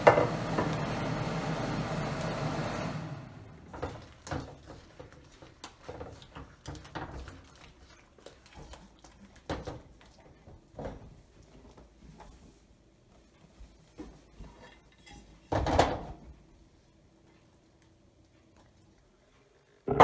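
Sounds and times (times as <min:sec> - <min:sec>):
chicken sizzling in a wok: 0:00.0 - 0:04.0.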